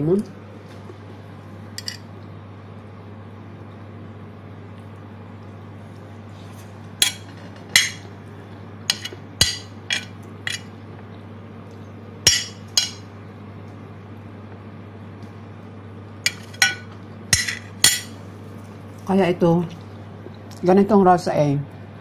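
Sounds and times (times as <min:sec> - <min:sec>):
steady low hum: 0:00.0 - 0:22.0
metal spoon clinking on plate: 0:01.8 - 0:02.0, 0:08.9 - 0:10.7, 0:12.3 - 0:13.0, 0:16.3 - 0:18.2.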